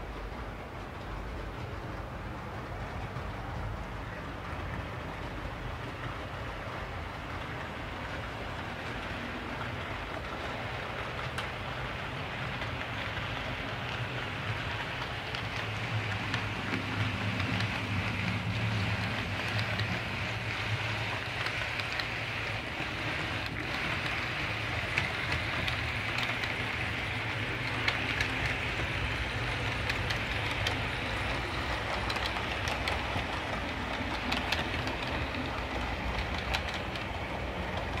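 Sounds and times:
model train motors humming: 0.0s - 38.0s
faint clicks: 11.2s - 11.6s, 27.6s - 38.0s.

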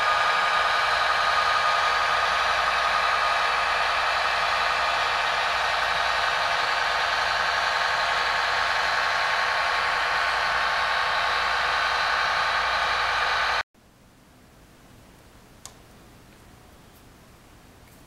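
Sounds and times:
model train diesel engine sound: 0.0s - 13.6s.

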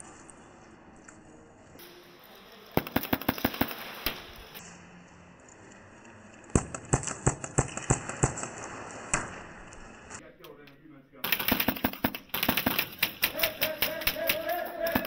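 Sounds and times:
airsoft gun shots: 2.8s - 4.6s, 6.6s - 9.6s, 11.2s - 15.0s.

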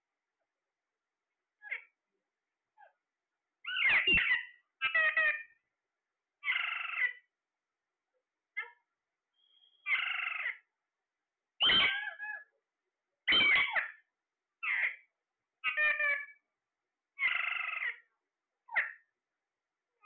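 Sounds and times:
parakeets calling: 3.6s - 5.6s, 6.4s - 7.3s, 9.6s - 10.7s, 11.6s - 12.4s, 13.3s - 14.0s, 14.6s - 16.4s, 17.2s - 18.1s, 18.7s - 19.1s.

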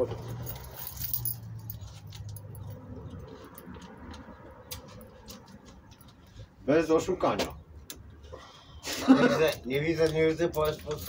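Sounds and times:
quiet clinks and rattles: 0.0s - 6.4s, 9.4s - 11.0s.

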